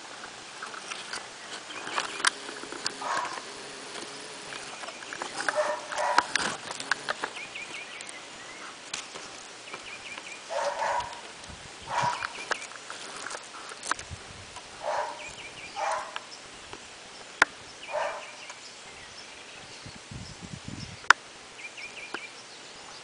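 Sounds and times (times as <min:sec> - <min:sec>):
small clicks: 0:00.6 - 0:08.2.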